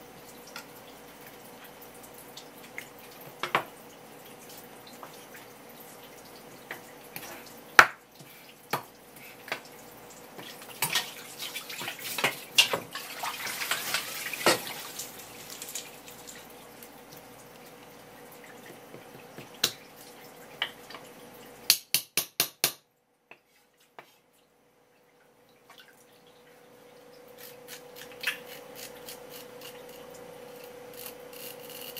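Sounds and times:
water running: 0.0s - 21.7s.

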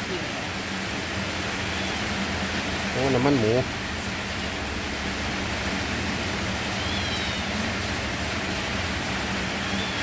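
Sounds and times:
steady rain hiss: 0.0s - 10.0s
faint high chirp: 6.8s - 7.5s.

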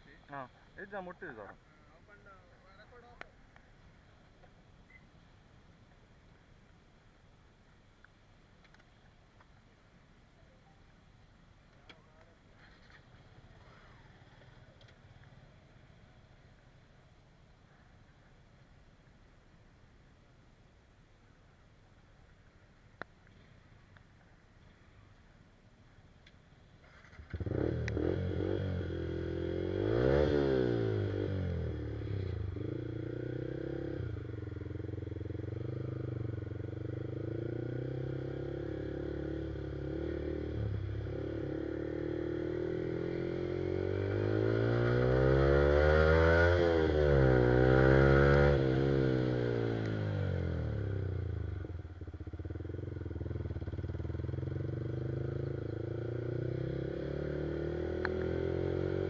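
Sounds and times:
motorcycle engine revving: 27.1s - 59.0s.

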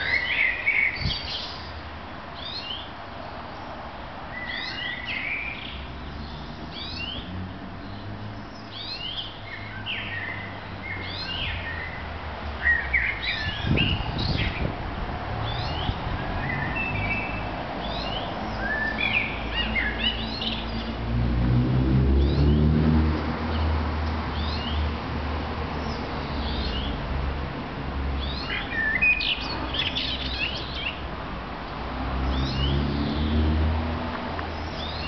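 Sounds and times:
songbirds chirping and singing: 0.0s - 14.8s, 15.4s - 21.1s, 25.7s - 27.2s, 28.1s - 31.1s, 32.2s - 35.0s.

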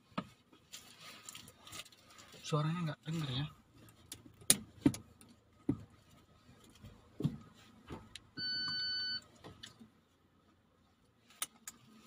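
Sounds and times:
clicks of car controls: 4.1s - 5.8s
dashboard electronic beep: 8.4s - 9.2s.

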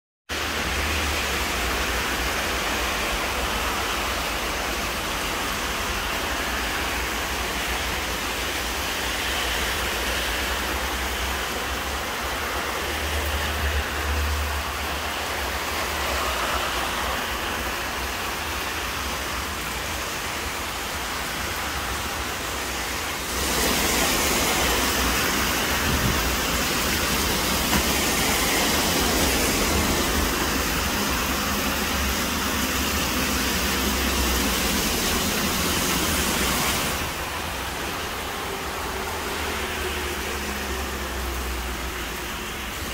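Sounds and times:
steady rain hiss: 0.3s - 42.9s.

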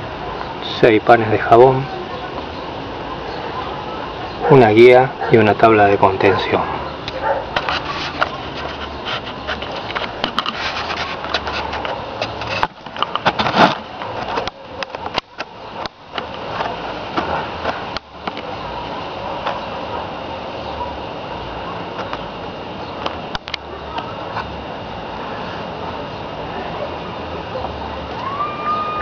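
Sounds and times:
steady background noise: 0.0s - 29.0s
handheld camera clicks and rustles: 7.1s - 16.8s.

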